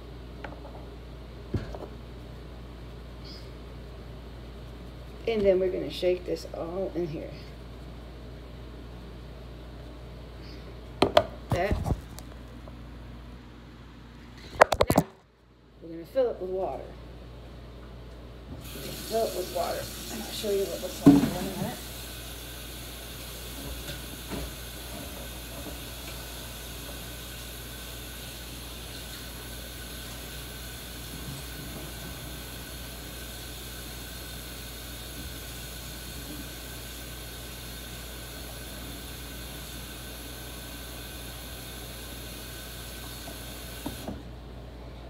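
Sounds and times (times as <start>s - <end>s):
tap water running into pan: 18.6s - 44.2s.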